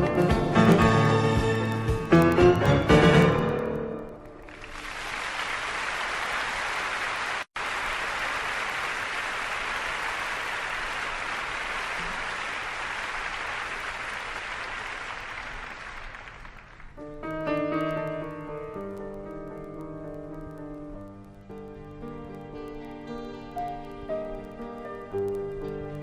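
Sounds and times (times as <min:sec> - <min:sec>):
piano music: 0:00.0 - 0:04.5, 0:17.0 - 0:26.0
audience applauding: 0:04.4 - 0:17.0.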